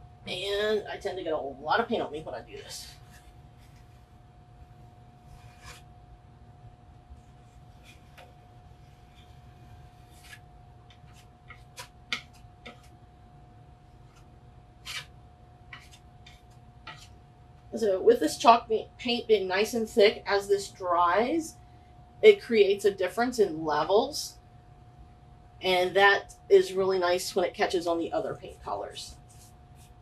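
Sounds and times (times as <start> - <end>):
knife scraping paint on wood: 5.2 - 5.9, 7.5 - 12.9, 14.1 - 15.1, 15.7 - 17.1.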